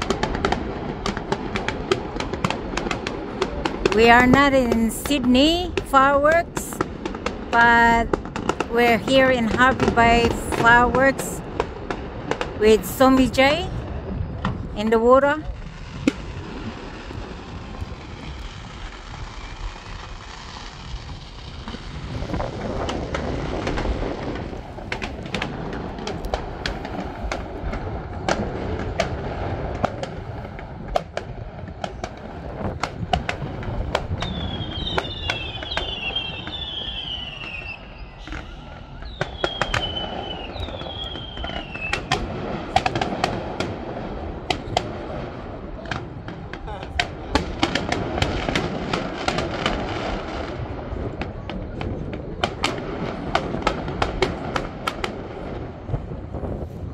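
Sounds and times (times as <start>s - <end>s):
fireworks bangs and crackles: 0.0s - 56.9s
low rumble: 2.0s - 35.6s.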